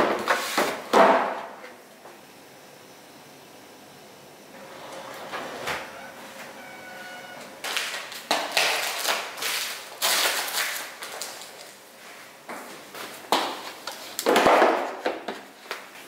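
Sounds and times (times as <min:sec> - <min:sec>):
drawer sliding open: 0:04.7 - 0:06.8
plastic packets crinkling: 0:07.6 - 0:11.8.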